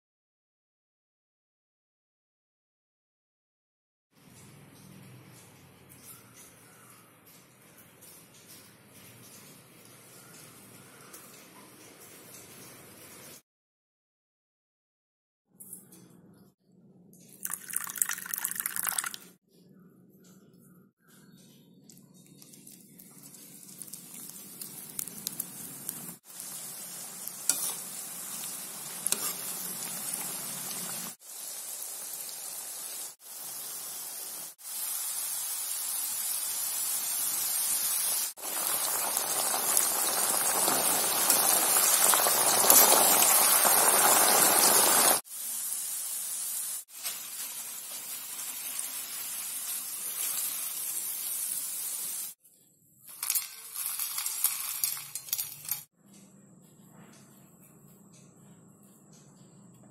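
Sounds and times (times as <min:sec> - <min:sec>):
food sizzling in hot oil: 0:22.6 - 0:52.4, 0:53.2 - 0:55.9.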